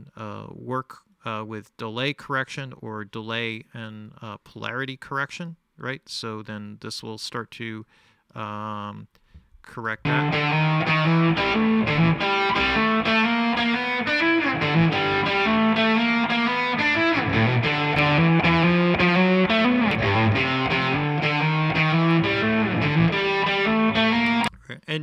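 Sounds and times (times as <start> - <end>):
distorted electric guitar music: 10.0 - 24.5.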